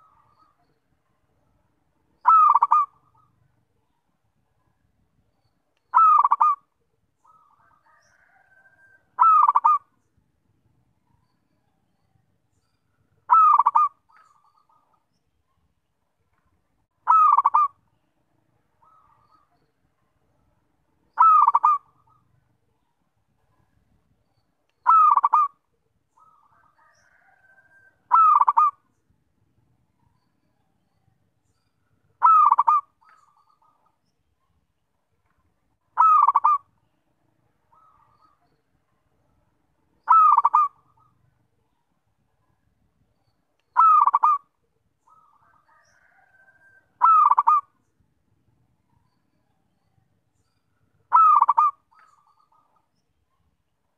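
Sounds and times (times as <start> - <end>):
dove cooing rapidly: 2.2 - 3.3, 5.9 - 6.7, 7.3 - 9.9, 13.3 - 14.8, 17.0 - 17.8, 21.2 - 22.2, 24.8 - 25.6, 26.2 - 28.8, 32.2 - 33.0, 36.0 - 36.7, 40.0 - 41.2, 43.8 - 44.5, 45.1 - 47.8, 51.1 - 52.8.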